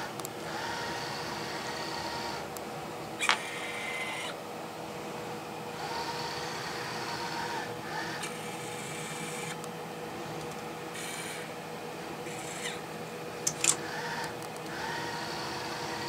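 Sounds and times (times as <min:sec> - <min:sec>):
low electrical hum: 0:00.0 - 0:16.0
robotic arm motors whining: 0:03.2 - 0:04.4, 0:05.8 - 0:09.6, 0:10.9 - 0:11.5, 0:12.2 - 0:12.8, 0:13.5 - 0:16.0.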